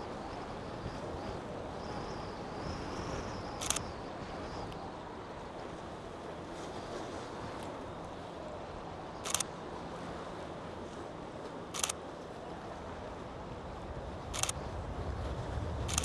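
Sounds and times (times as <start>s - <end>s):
camera shutter clicks: 14.4s - 14.6s.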